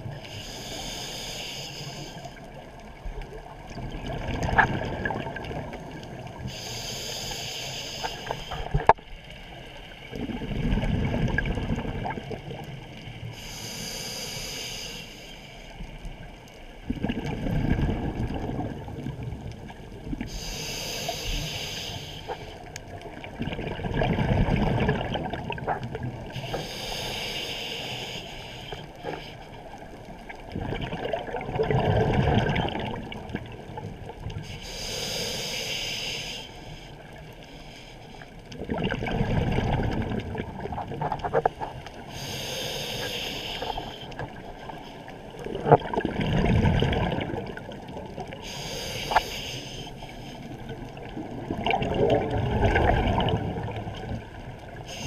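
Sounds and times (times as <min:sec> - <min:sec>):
regulator hiss on inhalation: 0:00.2 - 0:02.4, 0:06.4 - 0:08.8, 0:13.3 - 0:15.8, 0:20.3 - 0:22.7, 0:26.3 - 0:29.6, 0:34.4 - 0:38.3, 0:42.1 - 0:44.2, 0:48.4 - 0:50.5
gurgle of exhaled bubbles: 0:03.5 - 0:06.4, 0:10.1 - 0:12.8, 0:16.8 - 0:20.3, 0:23.0 - 0:26.4, 0:30.3 - 0:34.0, 0:38.5 - 0:41.7, 0:45.4 - 0:48.4, 0:50.5 - 0:54.9.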